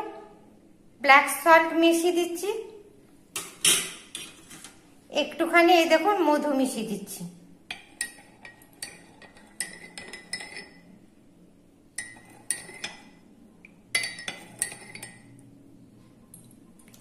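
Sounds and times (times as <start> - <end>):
teaspoon clinking in a cup: 7.7 - 10.9, 12.0 - 13.2, 13.9 - 15.4.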